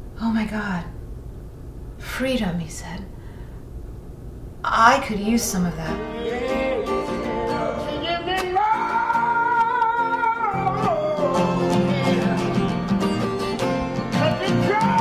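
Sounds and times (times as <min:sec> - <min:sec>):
acoustic guitar strumming: 0:05.9 - 0:15.0
person singing: 0:05.9 - 0:15.0.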